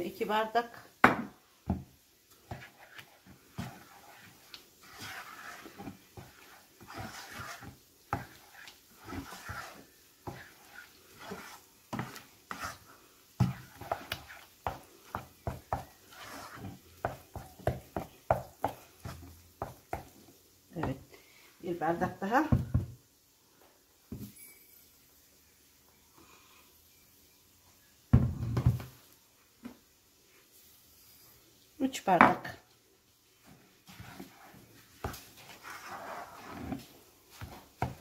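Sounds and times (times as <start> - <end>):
spoon stirring thick mix: 1.6 - 21.2, 33.3 - 38.0.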